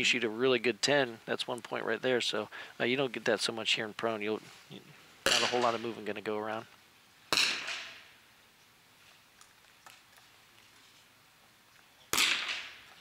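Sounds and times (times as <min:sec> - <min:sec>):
rifle shot crack: 0:05.2 - 0:05.8, 0:07.3 - 0:08.0, 0:12.1 - 0:12.9.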